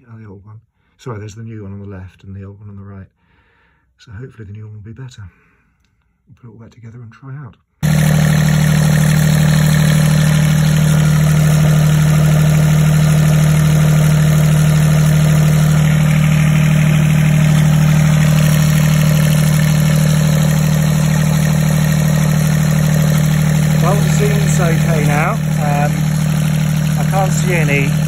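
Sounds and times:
marine diesel engine idling: 7.8 - 28.0.

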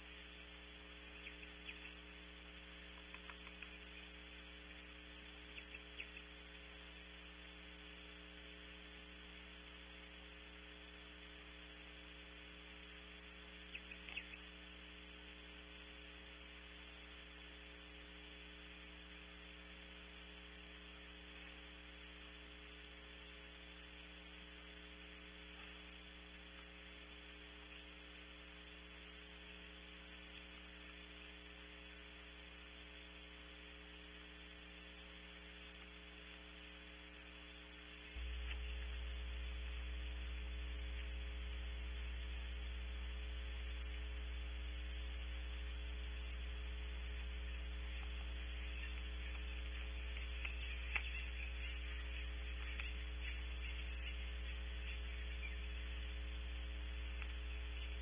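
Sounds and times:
electrical mains hum with hiss: 0.0 - 58.0.

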